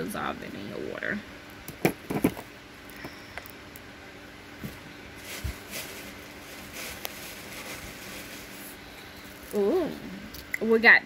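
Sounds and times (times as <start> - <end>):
faint steady hum: 0.0 - 11.0
packaging rustling: 4.6 - 9.6.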